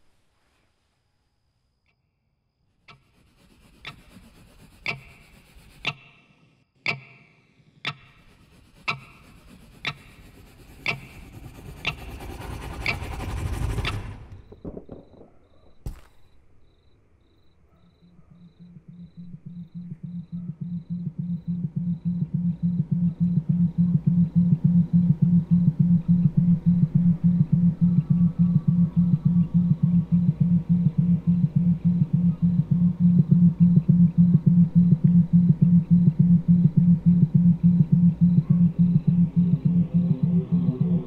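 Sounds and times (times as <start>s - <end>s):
wristwatch ticking: 3.8s - 6.2s, 6.9s - 14.0s, 18.4s - 41.0s
low pulsing tone: 8.0s - 15.4s, 18.5s - 41.0s
swell of noise: 8.3s - 15.1s, 23.6s - 41.0s.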